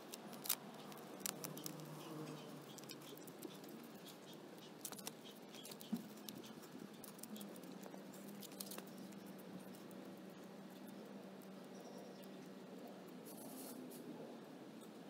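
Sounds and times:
faint scratching: 13.1s - 14.3s.

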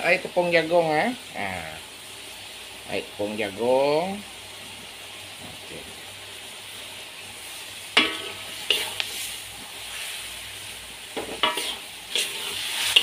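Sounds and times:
food sizzling in a wok: 0.0s - 13.0s
metal spatula clanking on wok: 8.0s - 9.0s, 11.2s - 13.0s.

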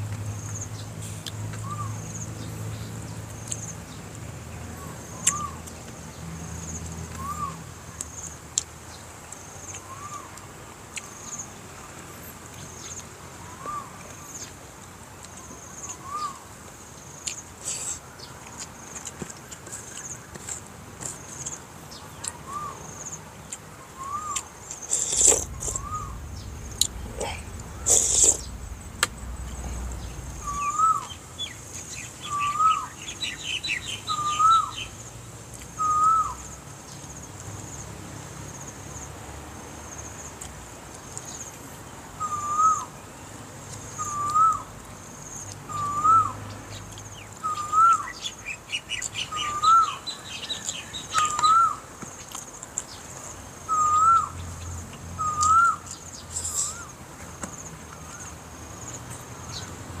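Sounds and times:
birds chirping and twittering: 0.3s - 10.4s, 11.0s - 37.4s, 41.0s - 59.8s
bird whistling rising and falling note: 25.0s - 33.0s.

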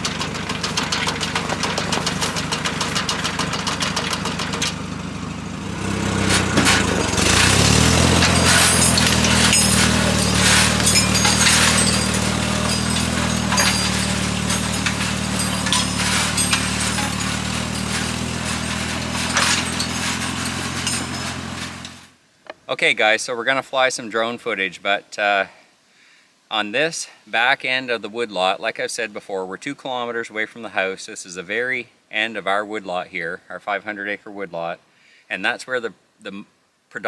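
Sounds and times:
clanks and rattles: 0.0s - 4.8s, 6.1s - 22.1s
tractor engine running: 0.0s - 22.1s.

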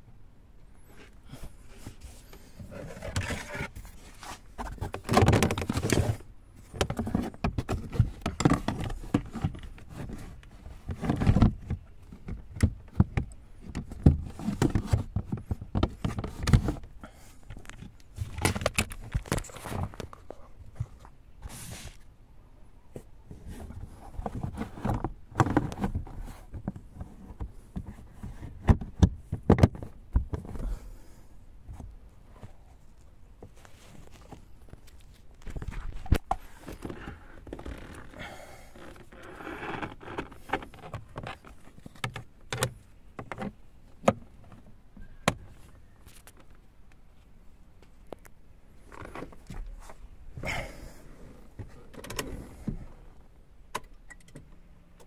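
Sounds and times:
rustling: 0.8s - 22.1s, 31.6s - 43.6s.

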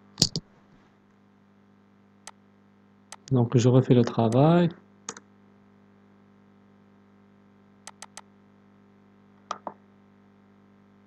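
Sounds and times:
faint steady hum: 0.0s - 11.0s
computer mouse clicking: 3.1s - 3.3s, 7.9s - 8.2s.

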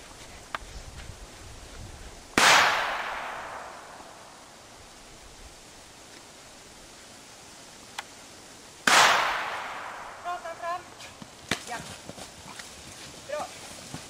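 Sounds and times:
loud gunshot with echo: 2.4s - 4.0s, 8.9s - 10.2s.

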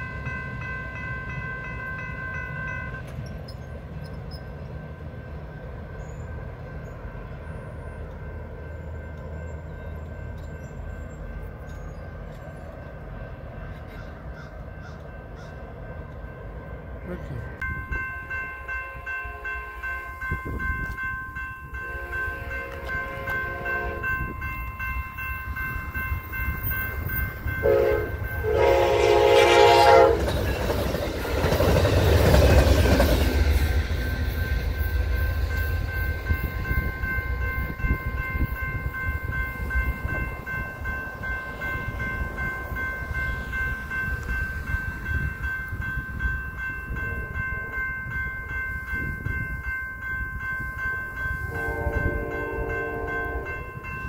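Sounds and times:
crossing bell ringing: 0.0s - 54.0s
train wheels rumbling on rail: 0.0s - 54.0s
train horn blasts: 18.8s - 20.4s, 21.8s - 24.4s, 27.5s - 30.4s, 51.5s - 53.8s.

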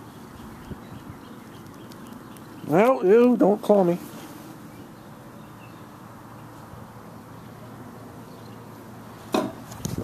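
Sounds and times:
outdoor background noise: 0.0s - 10.0s.

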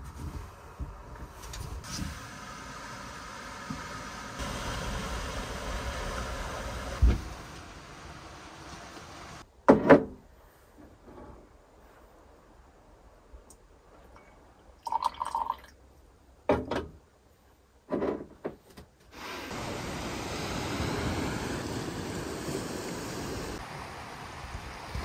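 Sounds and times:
wind: 0.0s - 25.0s
coffee pouring into a mug: 14.8s - 15.7s.

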